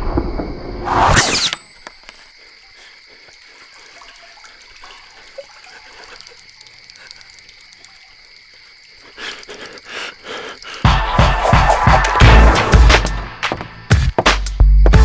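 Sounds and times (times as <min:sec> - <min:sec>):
light ticks: 0:05.0 - 0:10.8.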